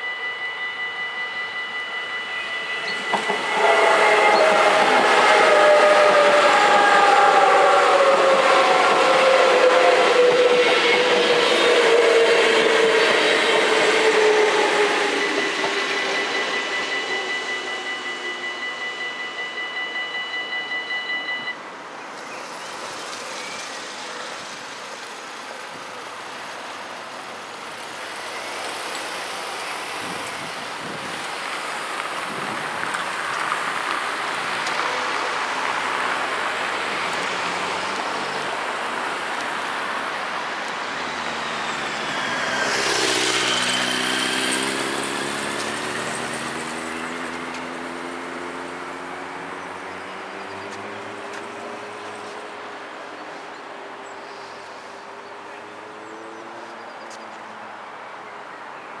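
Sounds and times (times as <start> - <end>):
level crossing warning bells: 0.0 - 27.4, 28.0 - 52.5
road traffic driving: 0.0 - 58.7
car passing close: 31.4 - 52.5.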